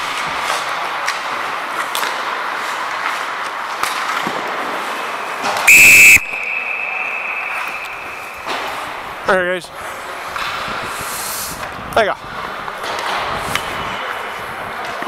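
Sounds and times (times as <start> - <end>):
sticks and puck clicking: 0.0 - 4.6
referee's whistle blast: 5.7 - 8.5.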